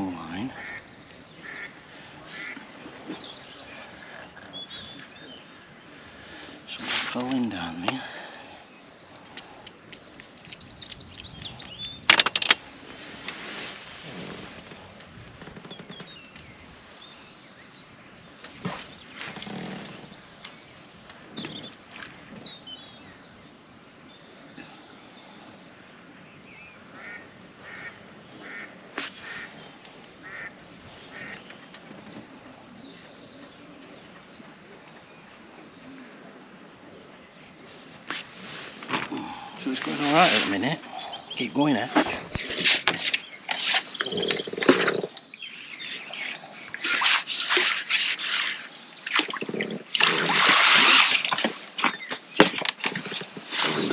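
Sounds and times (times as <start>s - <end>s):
small birds chirping: 0.0s - 12.4s, 15.5s - 53.9s
ducks quacking: 0.3s - 3.2s, 27.0s - 29.6s, 30.2s - 31.4s.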